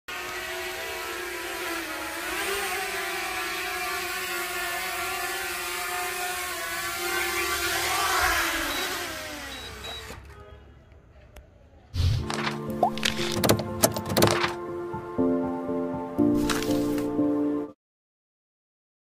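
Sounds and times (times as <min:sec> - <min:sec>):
drone propellers whirring: 0:00.1 - 0:10.2.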